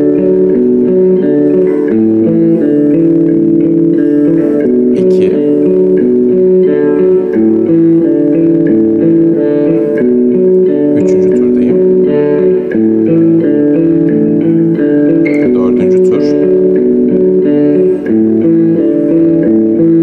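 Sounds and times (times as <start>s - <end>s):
electric guitar arpeggio: 0.0s - 20.0s.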